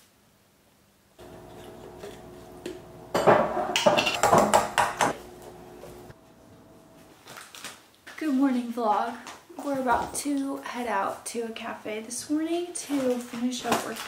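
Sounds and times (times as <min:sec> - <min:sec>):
faint steady hum: 0:00.4 - 0:07.5
spoon scraping ceramic bowl: 0:01.2 - 0:02.4.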